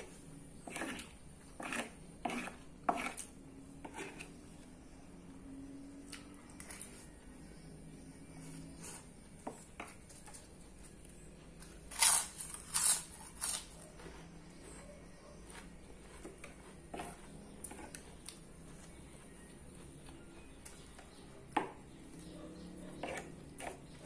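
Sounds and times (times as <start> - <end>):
cracker crunching: 11.4 - 14.2
chewing sounds: 15.4 - 21.4.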